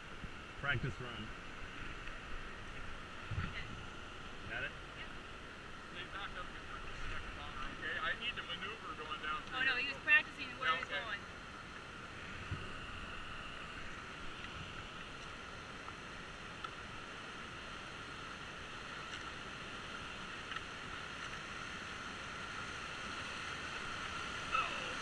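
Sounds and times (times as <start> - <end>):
whitewater river rapid rushing: 17.0 - 25.0.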